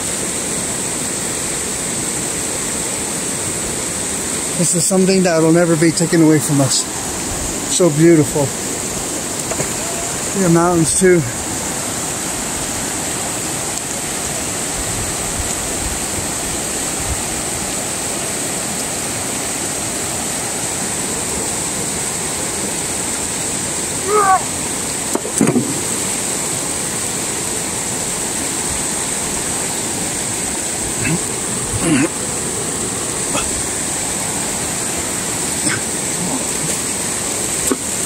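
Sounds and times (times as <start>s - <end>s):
stream flowing over rocks: 0.0s - 38.0s
brief thump: 25.1s - 25.8s.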